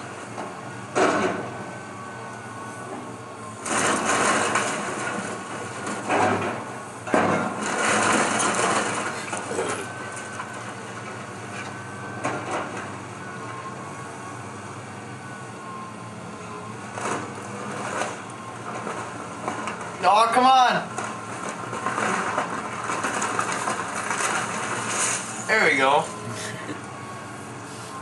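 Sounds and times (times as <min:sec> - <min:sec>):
excavator engine running: 0:00.0 - 0:28.0
falling debris: 0:03.6 - 0:11.1, 0:17.0 - 0:25.8
wood splintering and crashing: 0:03.6 - 0:11.2, 0:16.9 - 0:26.5.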